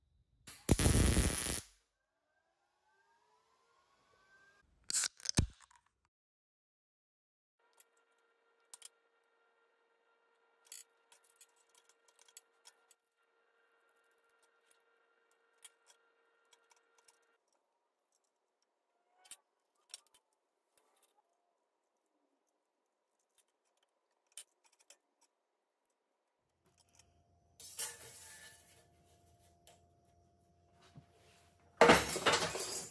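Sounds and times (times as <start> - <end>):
small metal parts clicking: 10.6 - 13.0, 15.6 - 26.0.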